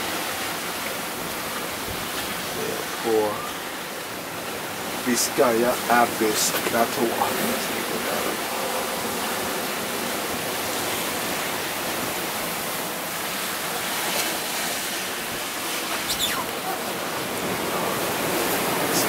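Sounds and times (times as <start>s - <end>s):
sea water rushing: 0.0s - 19.0s
strong wind: 0.0s - 19.0s
short falling squeak: 16.0s - 16.5s.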